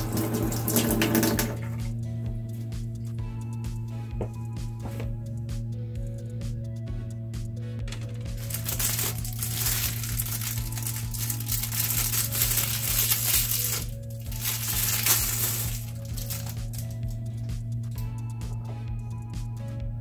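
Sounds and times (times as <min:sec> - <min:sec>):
background music: 0:00.0 - 0:20.0
plastic wrapping crinkling: 0:08.4 - 0:17.2.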